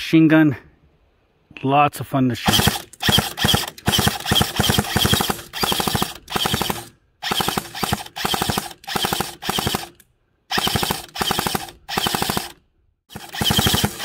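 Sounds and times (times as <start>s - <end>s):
airsoft machine gun bursts: 2.5s - 14.0s.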